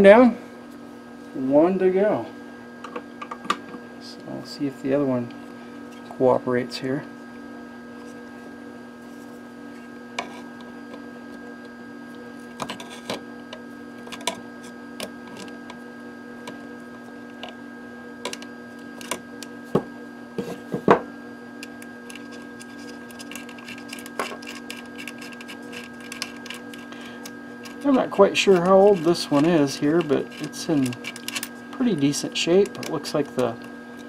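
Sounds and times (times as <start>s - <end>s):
electrical hum: 0.0s - 34.0s.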